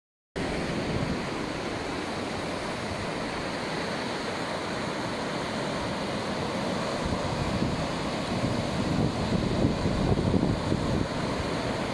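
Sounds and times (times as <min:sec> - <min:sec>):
surf washing onto beach: 0:00.4 - 0:11.9
wind buffeting microphone: 0:07.0 - 0:11.9.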